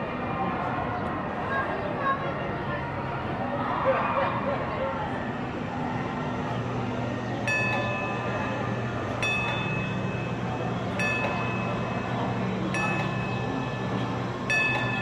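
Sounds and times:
streetcar low hum: 0:00.0 - 0:15.0
streetcar bell ringing: 0:06.5 - 0:15.0.

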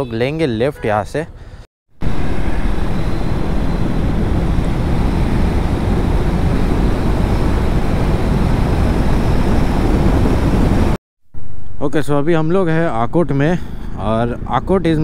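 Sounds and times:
wind rush on microphone: 0:02.0 - 0:11.0.

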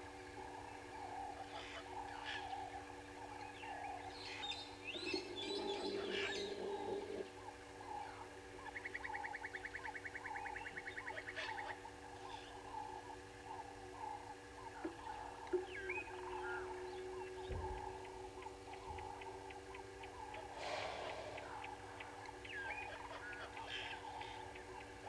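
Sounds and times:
faint steady hum: 0:00.0 - 0:25.0
low bird calls: 0:00.0 - 0:25.0
shrill bird calls: 0:13.5 - 0:24.9.

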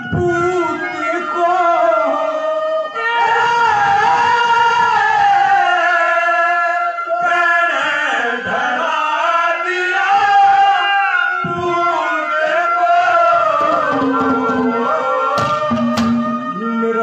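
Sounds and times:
instrumental accompaniment: 0:00.0 - 0:05.6, 0:10.0 - 0:17.0
men singing together: 0:00.0 - 0:17.0
drum strokes: 0:13.4 - 0:16.6.

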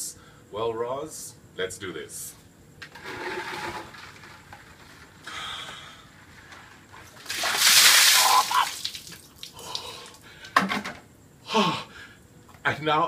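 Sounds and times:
water splashing over a man: 0:07.2 - 0:09.9.

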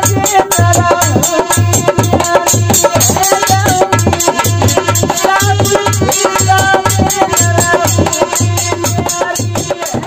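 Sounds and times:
dholak drum beating: 0:00.0 - 0:10.0
fast high ticking percussion: 0:00.0 - 0:10.0
harmonium: 0:00.0 - 0:10.0
man singing: 0:00.0 - 0:10.0.

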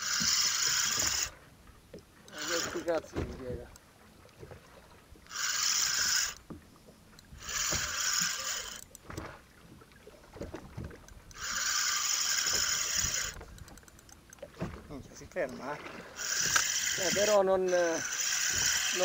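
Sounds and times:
fishing reel drag buzzing: 0:00.0 - 0:01.4, 0:02.2 - 0:03.8, 0:05.2 - 0:06.5, 0:07.2 - 0:09.1, 0:11.2 - 0:14.4, 0:15.2 - 0:19.0.

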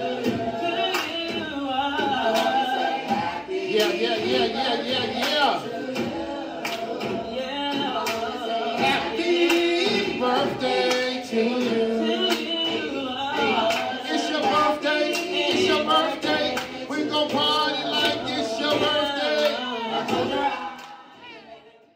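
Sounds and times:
music with singing over a beat: 0:00.0 - 0:21.9.

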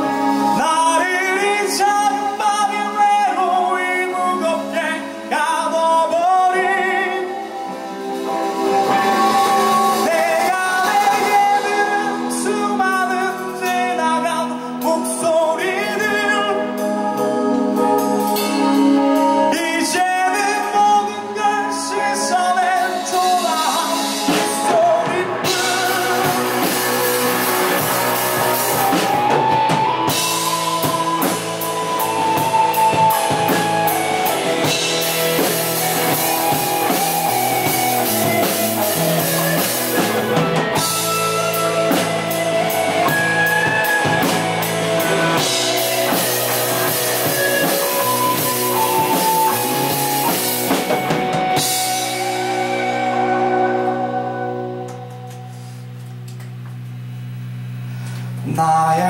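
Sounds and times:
bass guitar: 0:00.0 - 0:59.0
drum kit: 0:00.0 - 0:59.0
electric guitars: 0:00.0 - 0:59.0
cymbals: 0:16.8 - 0:56.3.

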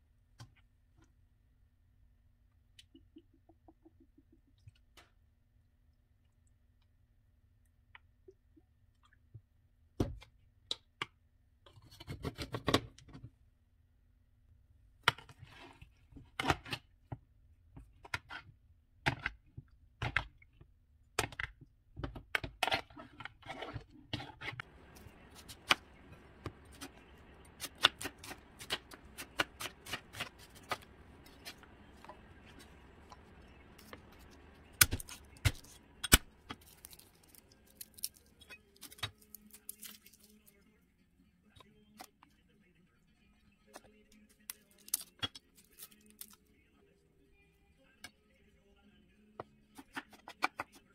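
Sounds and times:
garlic peel rustling: 0:24.2 - 0:40.5.

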